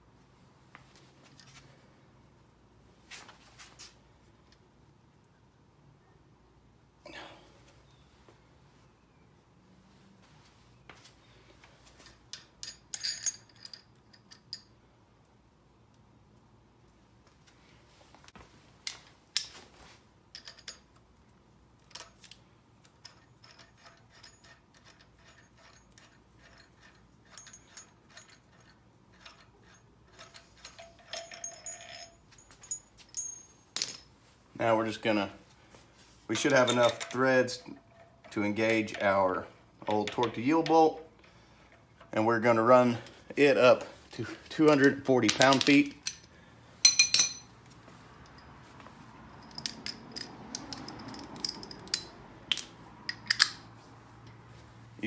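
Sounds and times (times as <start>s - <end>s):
metallic ticks and clinks: 23.0s - 34.1s, 44.7s - 47.5s, 49.4s - 52.2s
ringing clink: 30.2s - 34.1s, 45.3s - 47.5s
metallic clicks of hand tools: 49.4s - 53.6s.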